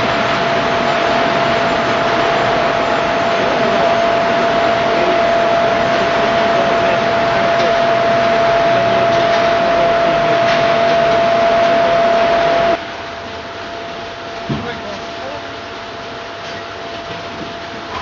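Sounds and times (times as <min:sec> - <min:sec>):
machinery rushing hiss with whine: 0:00.0 - 0:12.9.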